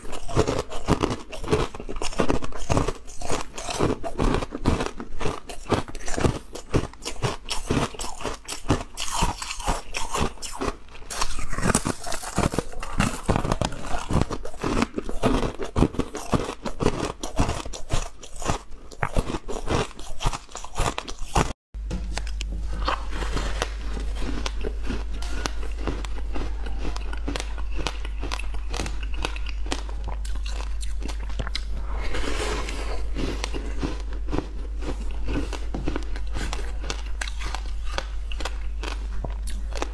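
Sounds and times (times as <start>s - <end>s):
chewing crackle: 0.0s - 21.5s, 22.2s - 39.9s
steady low hum: 21.4s - 39.9s
ice crunching: 22.8s - 26.5s.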